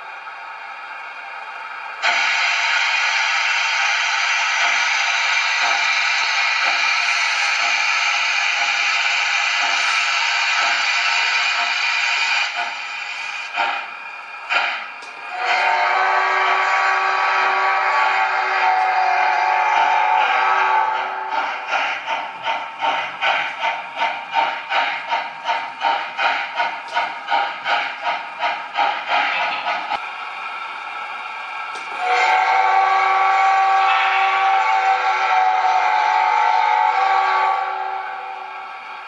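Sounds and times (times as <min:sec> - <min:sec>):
steam hissing: 0:00.0 - 0:39.0
steam locomotive exhaust chuffs: 0:00.0 - 0:39.0
multi-tone steam whistle blast: 0:02.0 - 0:13.9, 0:14.5 - 0:26.0, 0:31.8 - 0:38.6.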